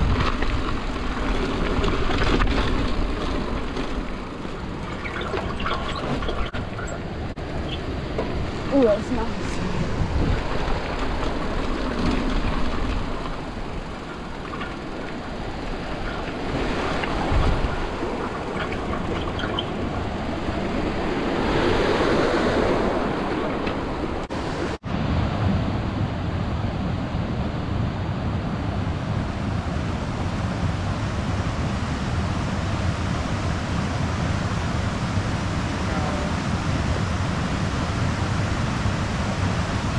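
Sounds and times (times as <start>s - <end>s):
mountain bike rattling on gravel: 0.0s - 21.2s
creek rushing over boulders: 0.0s - 24.8s.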